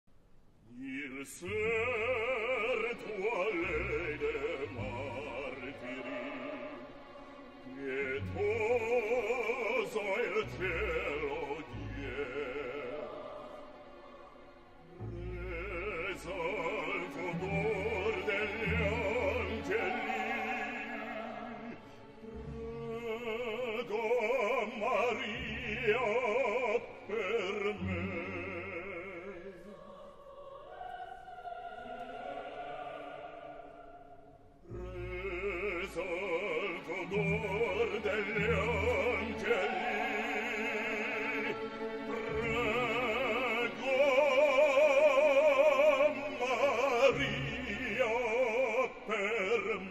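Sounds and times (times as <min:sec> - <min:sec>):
operatic bass singing: 0:00.8 - 0:14.1, 0:14.9 - 0:30.0, 0:34.6 - 0:49.9
orchestra playing: 0:01.5 - 0:29.3, 0:34.7 - 0:49.9.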